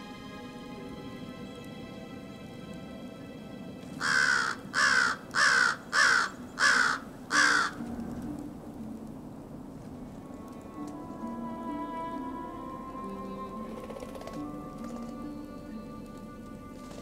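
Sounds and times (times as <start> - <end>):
crow cawing: 4.0 - 7.8.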